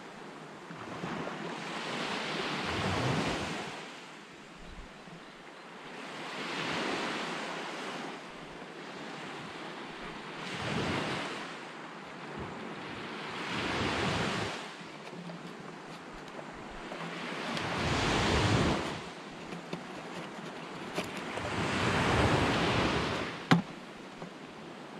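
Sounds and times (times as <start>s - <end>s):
surf on pebble beach: 0.8s - 4.2s, 5.8s - 24.9s
wind buffeting microphone: 12.4s - 19.8s.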